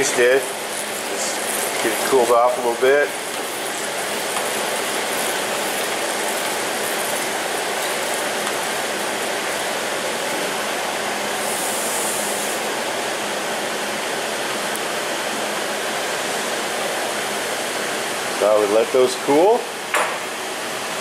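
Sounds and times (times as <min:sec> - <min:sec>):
hot steel hissing in water: 0:00.0 - 0:13.0.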